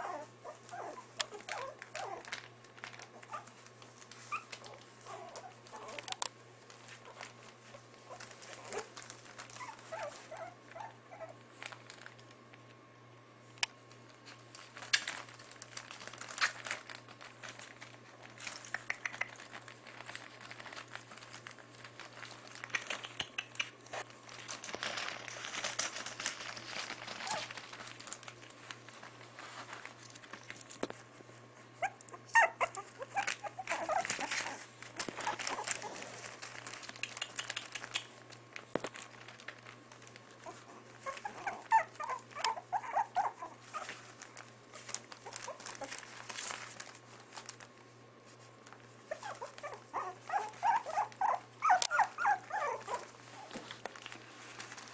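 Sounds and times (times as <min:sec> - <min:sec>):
puppies yipping and whining: 0:00.0 - 0:02.4, 0:03.1 - 0:06.1, 0:08.1 - 0:11.4, 0:31.8 - 0:36.2, 0:40.4 - 0:44.2, 0:49.1 - 0:53.6
newspaper rustling: 0:00.0 - 0:12.4, 0:13.9 - 0:18.7, 0:19.3 - 0:22.8, 0:23.9 - 0:54.9.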